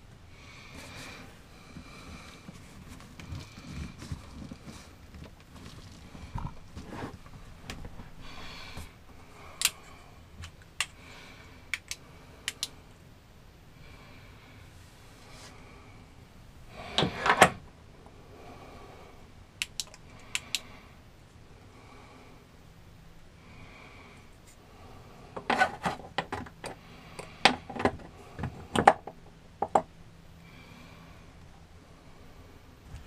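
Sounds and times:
sharp clicks: 0:11.7 - 0:12.8, 0:19.6 - 0:20.7.

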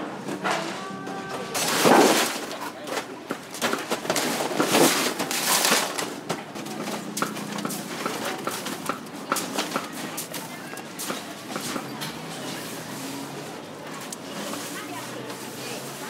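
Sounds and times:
crushed ice spilling on metal counter: 0:01.4 - 0:03.1.

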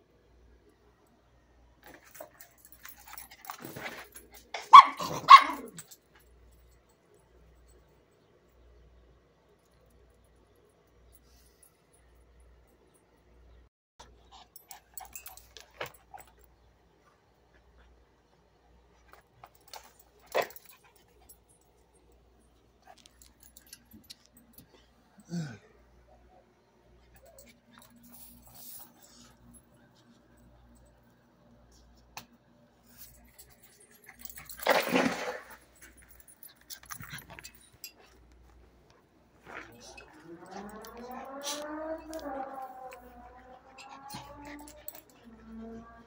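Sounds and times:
dog barking: 0:04.6 - 0:05.8.

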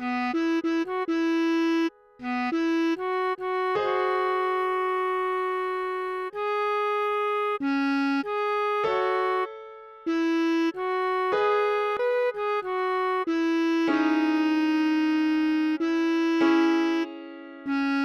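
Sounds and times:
bass clarinet slow melody: 0:00.0 - 0:18.0.

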